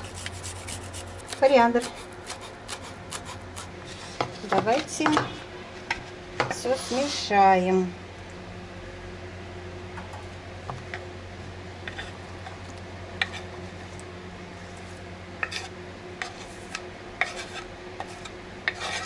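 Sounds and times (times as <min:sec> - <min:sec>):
knife scraping cutting board: 0:00.0 - 0:05.3, 0:06.5 - 0:07.3, 0:11.8 - 0:12.2, 0:13.2 - 0:13.6, 0:15.4 - 0:19.0.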